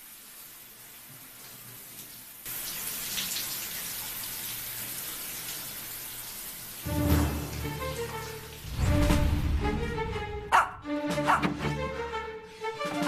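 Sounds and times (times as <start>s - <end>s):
shower water spraying: 0.0s - 10.0s
music: 6.8s - 13.0s.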